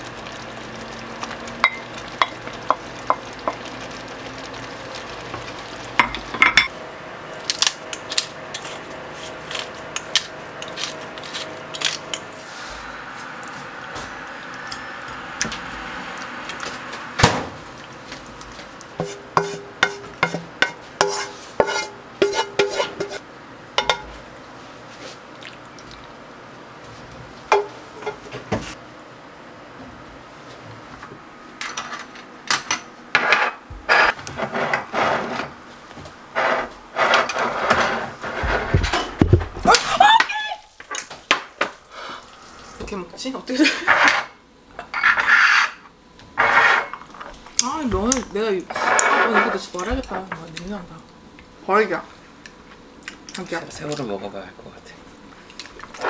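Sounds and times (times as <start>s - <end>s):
low sizzle: 0.0s - 56.0s
utensil scraping a pan: 19.0s - 23.2s, 33.2s - 35.6s, 36.3s - 39.1s, 43.8s - 47.0s, 48.7s - 49.8s.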